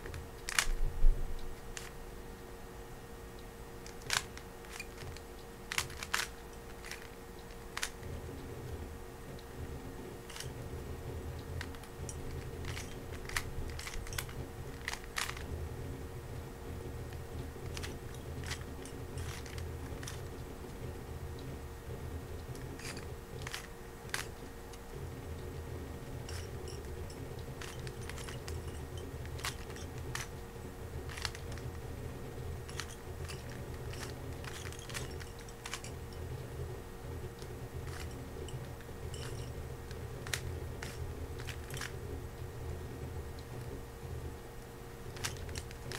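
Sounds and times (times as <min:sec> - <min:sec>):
steady low hum: 0:00.0 - 0:45.9
puzzle cube layers clicking: 0:03.8 - 0:08.0, 0:11.4 - 0:15.5, 0:17.0 - 0:20.3, 0:26.3 - 0:30.4, 0:31.1 - 0:31.7.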